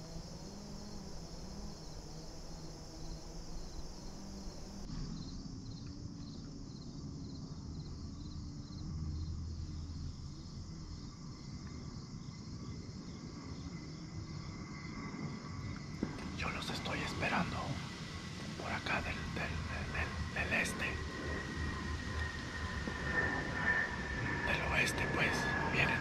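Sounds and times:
insects chirping: 0:00.0 - 0:26.0
low rumble: 0:16.0 - 0:26.0.

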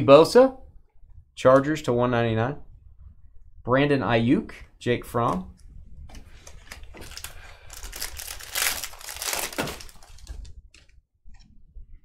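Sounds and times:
foil wrapper crinkling: 0:06.4 - 0:10.5.

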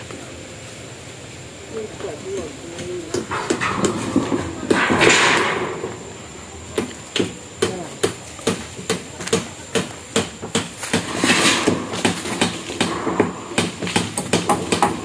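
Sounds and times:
hammer striking nails: 0:02.8 - 0:05.5, 0:06.8 - 0:15.0
metal roofing sheet rattling: 0:03.2 - 0:06.2, 0:10.9 - 0:15.0.

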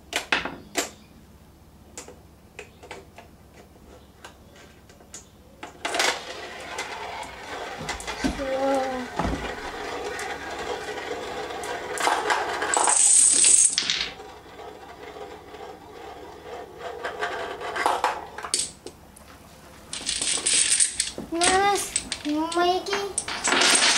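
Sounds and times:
dominoes clattering: 0:05.8 - 0:18.9, 0:19.9 - 0:23.9
child's voice: 0:08.2 - 0:09.3, 0:21.3 - 0:23.3
dominoes toppling and clicking: 0:09.7 - 0:18.9, 0:19.9 - 0:22.6, 0:23.2 - 0:23.9.

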